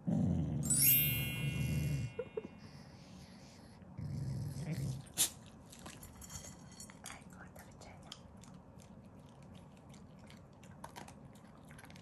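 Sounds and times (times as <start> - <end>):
dog growling low: 0.0 - 0.6, 3.9 - 5.2.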